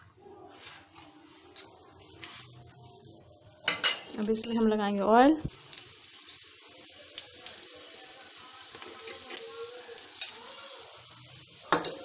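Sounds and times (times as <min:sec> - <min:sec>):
oil sizzling on a hot pan: 0:01.0 - 0:12.0
sharp crackles: 0:05.2 - 0:08.1.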